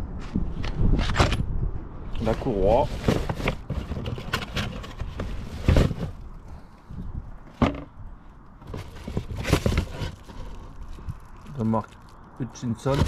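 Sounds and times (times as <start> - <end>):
parts rustling: 2.2 - 6.8, 7.4 - 13.0.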